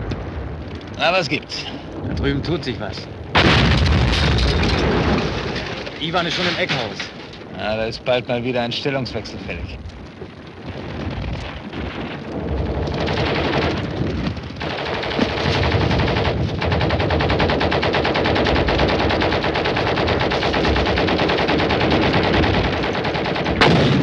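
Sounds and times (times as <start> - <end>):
machine-gun fire: 3.3 - 6.9, 10.8 - 24.0.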